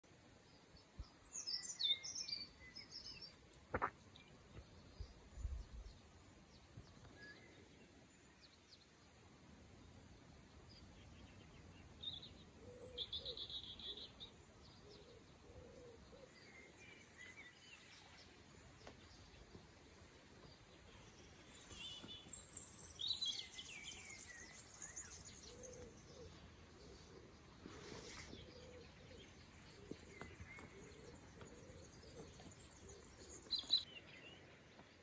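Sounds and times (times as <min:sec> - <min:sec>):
soft low bird coos: 0:12.3 - 0:17.5, 0:23.8 - 0:33.8.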